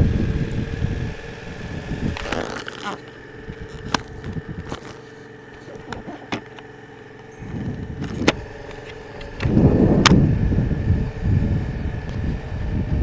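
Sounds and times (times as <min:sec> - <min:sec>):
motorcycle engine running: 0:00.0 - 0:13.0
sharp clicks and knocks: 0:05.6 - 0:06.7.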